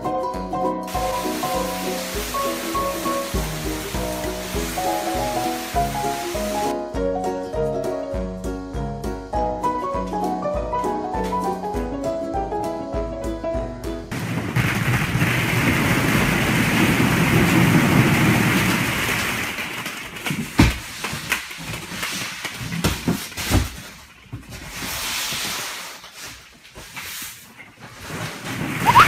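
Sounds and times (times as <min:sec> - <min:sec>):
plastic balls clattering: 0:00.9 - 0:06.7, 0:14.1 - 0:24.8, 0:27.6 - 0:29.0.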